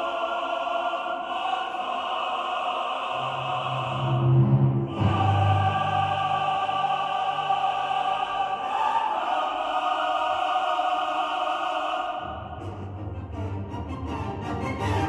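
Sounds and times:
choir holding sustained chords: 0.0 - 15.0
orchestral music: 3.0 - 10.2, 11.4 - 15.0.

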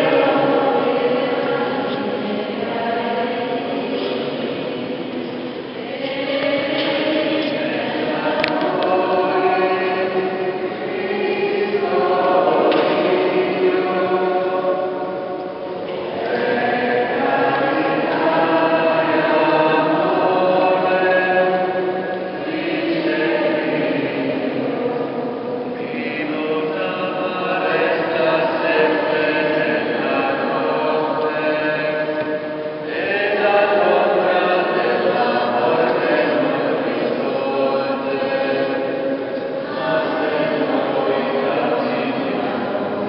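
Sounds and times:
congregation singing: 0.0 - 43.0.

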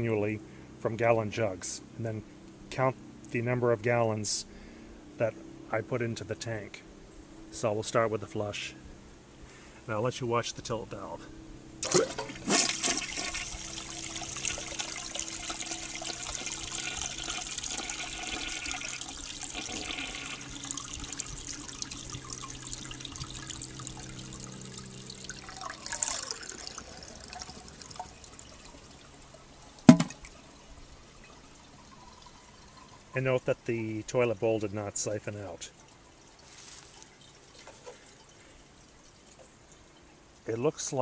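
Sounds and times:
toilet tank water rushing out: 11.8 - 30.4
sharp knock: 29.9 - 30.2.

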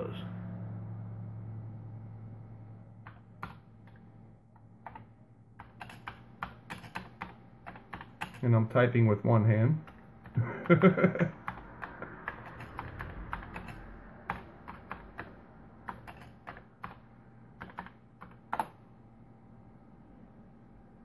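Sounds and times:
keyboard keystroke clacks: 4.6 - 8.4, 9.8 - 17.0, 17.6 - 18.8.

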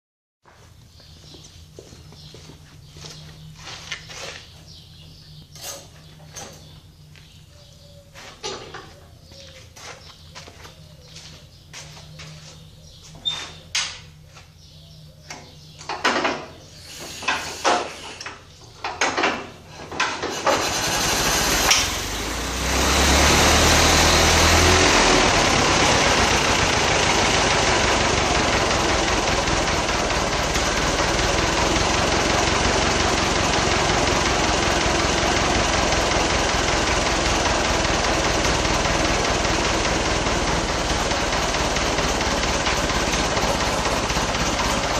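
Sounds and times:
engine cranking bangs: 15.9 - 44.9
truck engine idling: 20.5 - 44.9.

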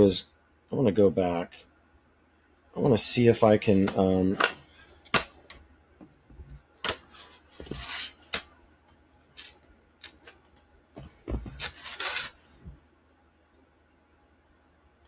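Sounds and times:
stylus rubbing and scraping: 11.5 - 12.5.

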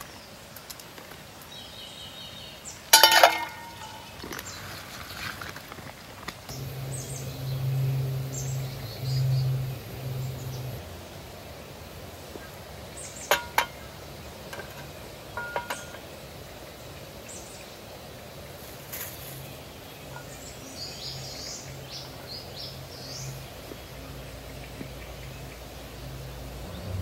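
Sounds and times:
small birds chirping: 6.4 - 10.8, 11.4 - 27.0
faint ringing clinks: 14.6 - 16.0.

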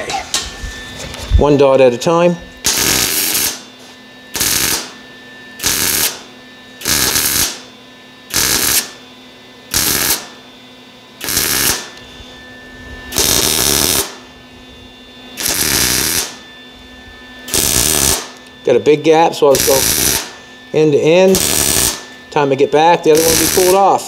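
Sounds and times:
welding arc bursts: 2.6 - 3.6, 4.3 - 5.0, 5.6 - 7.7, 8.3 - 9.0, 9.7 - 10.4, 11.2 - 11.9, 13.1 - 14.2, 15.4 - 16.4, 17.5 - 18.4, 19.5 - 20.4, 21.3 - 24.0.

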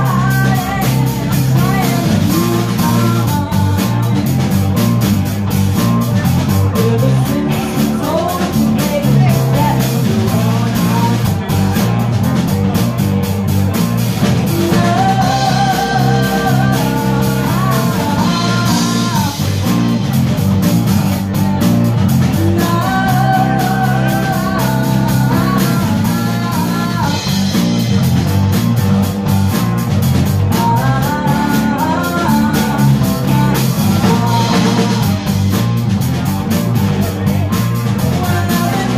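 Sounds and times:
woman singing: 0.0 - 4.5, 6.6 - 11.8, 14.2 - 20.0, 22.1 - 27.8, 30.4 - 35.2, 38.0 - 38.9
drum kit: 0.0 - 38.9
electric bass: 0.0 - 38.9
electric guitars: 0.0 - 38.9.

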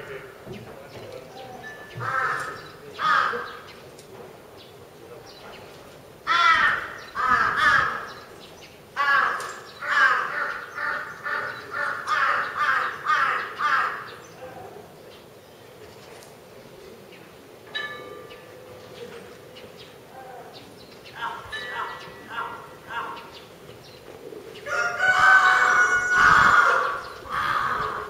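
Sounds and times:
crows cawing: 2.0 - 3.7, 6.3 - 8.3, 9.0 - 14.8, 21.2 - 23.4, 24.7 - 28.0.

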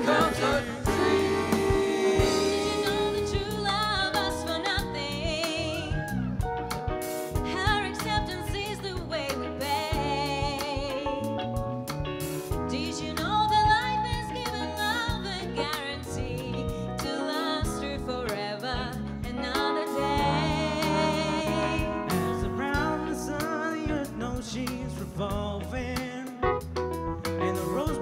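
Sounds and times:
drums steady beat: 0.0 - 5.7, 6.4 - 13.0
live soul band playing: 0.0 - 28.0.

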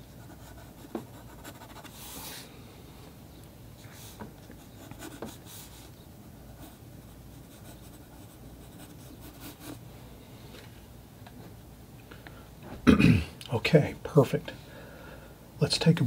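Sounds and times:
pencil scratching on paper: 0.0 - 2.3, 4.6 - 5.9, 6.5 - 9.8.

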